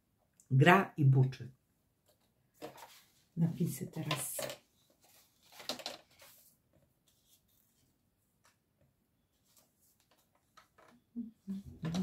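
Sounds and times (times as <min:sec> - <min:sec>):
paper rustling: 0:02.1 - 0:03.3, 0:03.9 - 0:08.6, 0:09.3 - 0:10.9.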